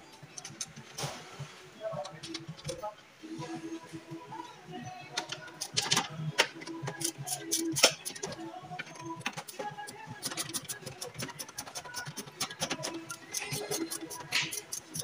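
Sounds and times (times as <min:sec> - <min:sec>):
faint music: 0:00.0 - 0:15.0
hand tools clicking on metal: 0:05.2 - 0:15.0.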